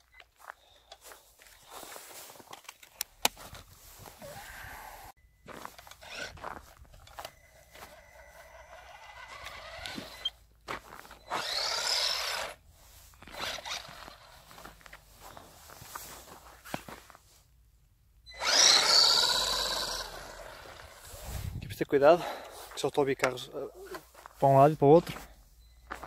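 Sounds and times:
tyres crunching through snow: 0.3 - 17.5, 18.4 - 26.0
electric motor whining: 5.9 - 10.4, 11.2 - 12.6, 13.2 - 14.5, 18.3 - 21.3.

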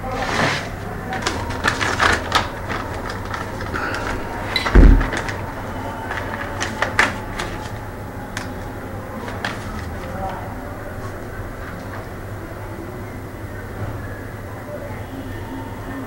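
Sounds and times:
paper rustling: 0.0 - 12.0
steady low hum: 0.0 - 16.0
heavy deep thump: 4.7 - 5.1.

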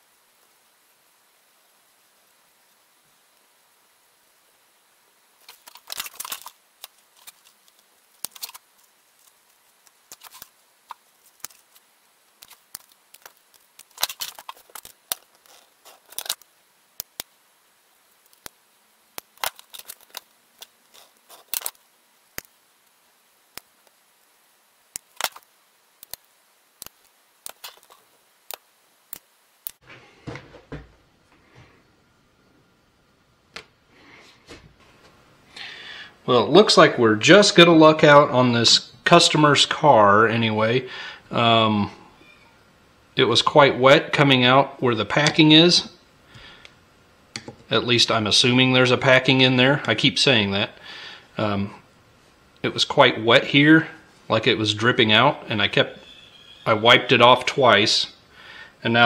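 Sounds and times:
rustle of gaskets handled: 5.4 - 17.3, 19.2 - 22.5, 25.0 - 30.8.

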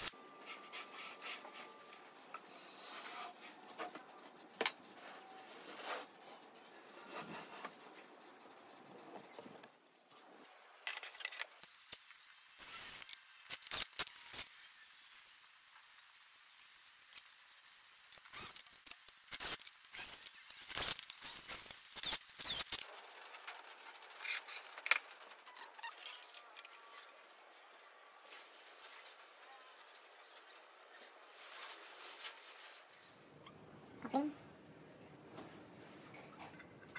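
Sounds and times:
parts clicking and scraping: 10.7 - 14.5, 18.1 - 27.4.

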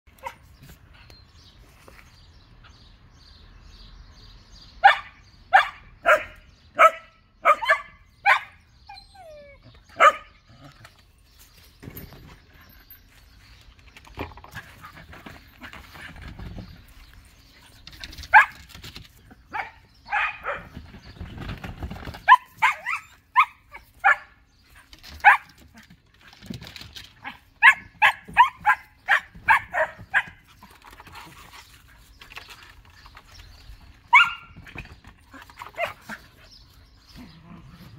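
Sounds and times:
dogs barking: 4.8 - 8.6, 9.9 - 10.4, 18.3 - 18.6, 19.5 - 20.7, 22.3 - 24.4, 27.2 - 30.5, 34.1 - 34.6.

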